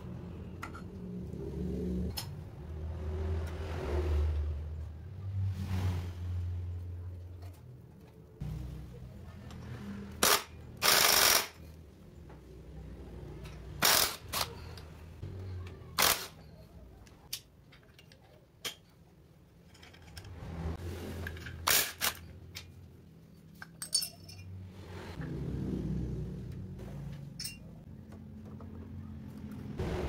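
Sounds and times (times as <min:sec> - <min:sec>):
metallic clinks and scrapes: 0:19.5 - 0:25.2, 0:27.1 - 0:27.9.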